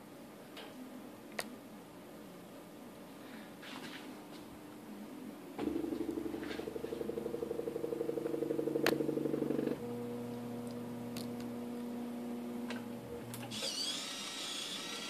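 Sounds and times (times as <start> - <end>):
steady electric hum: 0.0 - 15.0
buzzing pulsing motor: 5.6 - 15.0
stepper motor whine: 5.6 - 15.0.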